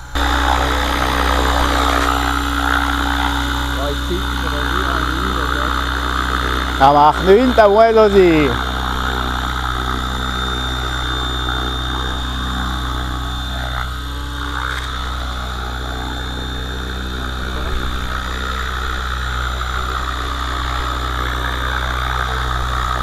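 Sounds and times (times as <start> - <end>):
high motor whine: 0.0 - 23.0
rc helicopter rotor drone: 0.0 - 23.0.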